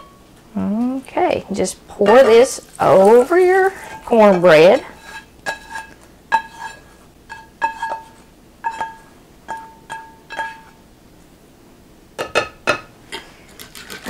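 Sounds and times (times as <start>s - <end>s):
spatula knocking on metal skillet: 4.0s - 10.8s, 12.2s - 12.9s.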